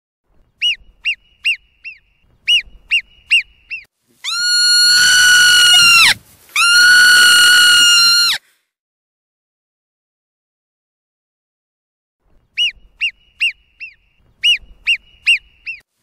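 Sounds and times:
marmot alarm whistling: 0:00.6 - 0:06.9, 0:12.6 - 0:15.8.

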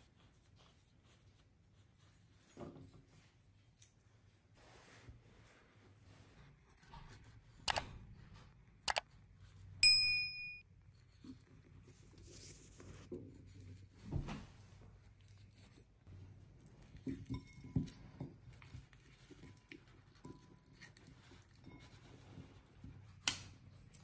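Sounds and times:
soft scrape: 0:04.2 - 0:07.5, 0:11.8 - 0:15.0.

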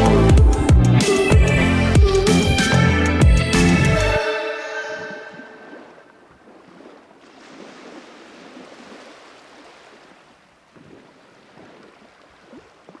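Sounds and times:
small waves lapping: 0:04.7 - 0:13.0.

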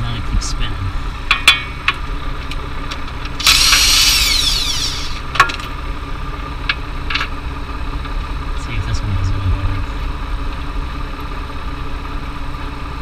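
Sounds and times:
impact wrench whine: 0:03.4 - 0:05.5.

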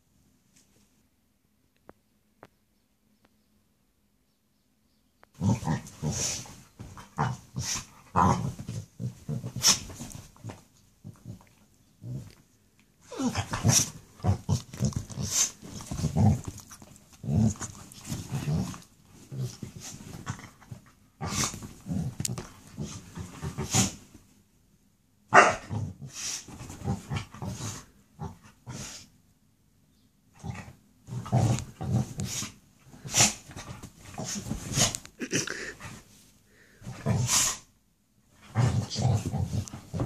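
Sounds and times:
dog growling: 0:05.4 - 0:12.4, 0:13.0 - 0:24.0, 0:38.4 - 0:40.0.

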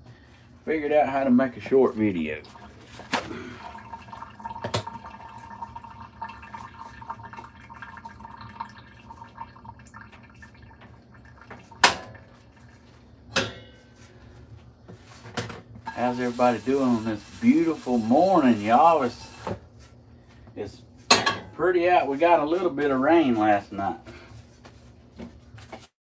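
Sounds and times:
pan clanking on metal grate: 0:21.1 - 0:21.5.

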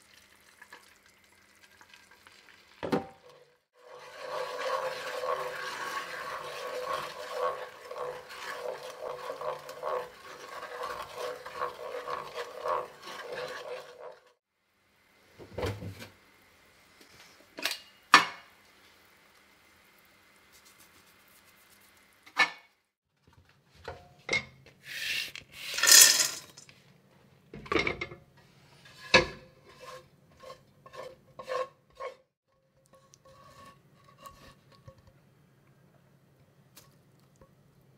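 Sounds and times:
wooden spatula scraping frying pan: 0:03.2 - 0:14.4, 0:28.4 - 0:35.0
sugar mixture bubbling: 0:03.6 - 0:14.4.

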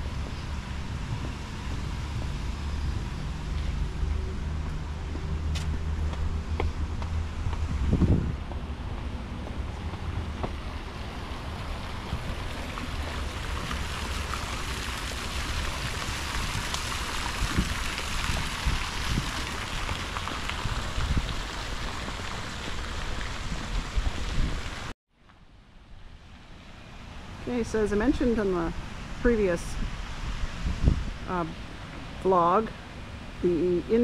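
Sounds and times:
wind buffeting microphone: 0:00.0 - 0:24.9, 0:27.8 - 0:34.0
steady rain-like hiss: 0:08.9 - 0:34.0.

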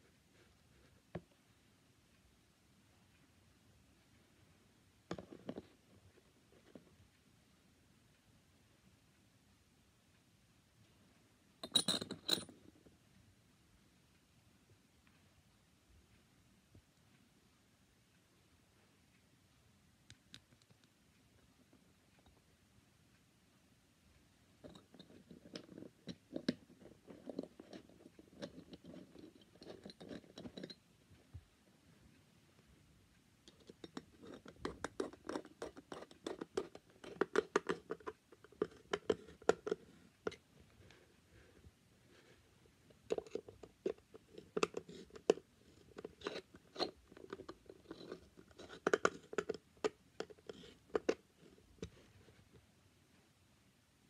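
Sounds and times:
plastic and metal clicks and scrapes: 0:33.5 - 0:40.4, 0:42.9 - 0:52.1.

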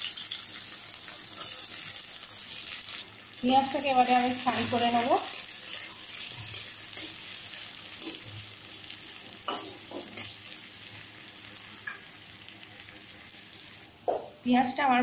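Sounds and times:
onions sizzling in oil: 0:00.0 - 0:15.0
metal spatula scraping a pan: 0:03.4 - 0:08.2.

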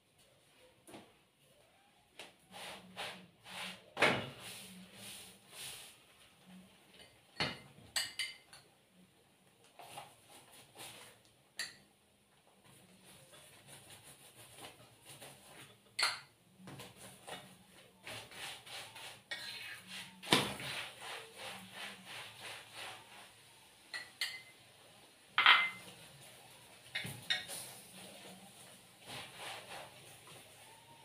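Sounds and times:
metal spoon scraping frying pan: 0:18.1 - 0:24.6.

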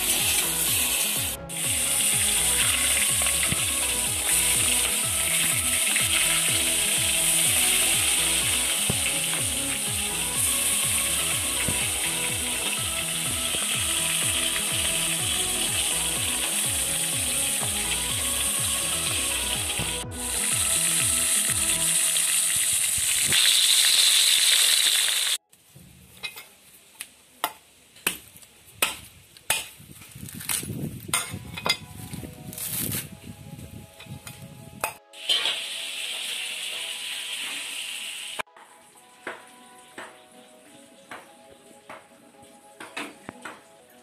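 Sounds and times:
prawns sizzling in oil: 0:00.0 - 0:25.4, 0:35.1 - 0:40.8
machete chopping coconut: 0:27.4 - 0:30.6.

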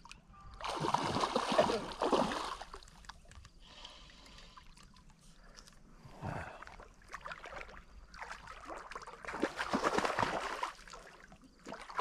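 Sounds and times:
fish splashing in water: 0:07.0 - 0:12.0.

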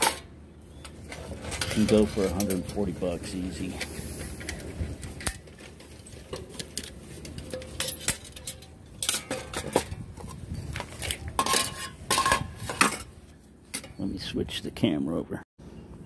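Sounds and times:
metal pots clattering on glass: 0:11.4 - 0:13.1.

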